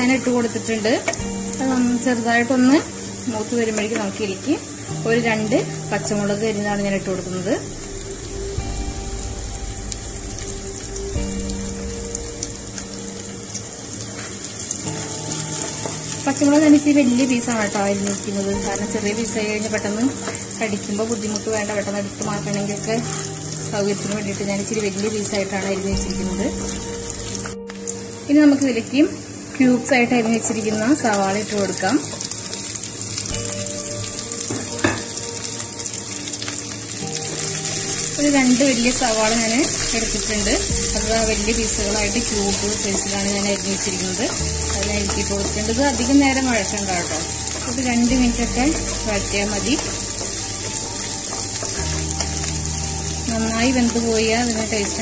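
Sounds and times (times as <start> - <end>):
garlic sizzling in hot oil: 0.0 - 55.0
soft background music: 0.0 - 55.0
wooden spatula stirring: 41.1 - 53.5.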